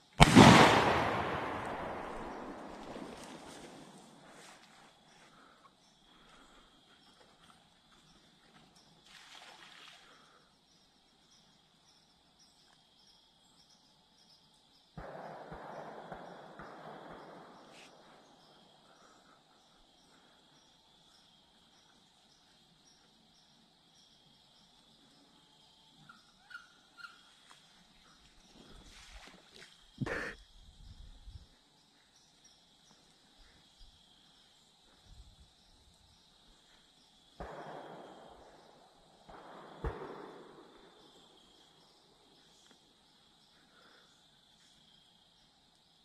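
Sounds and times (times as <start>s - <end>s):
high-pitched insect chorus: 0.0s - 15.4s, 16.1s - 46.0s
gunshot echo: 0.2s - 4.2s, 15.0s - 18.3s, 37.4s - 41.3s.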